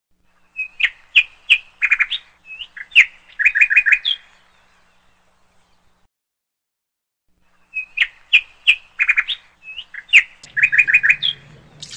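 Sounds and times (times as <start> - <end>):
bird chirping: 7.5 - 11.9.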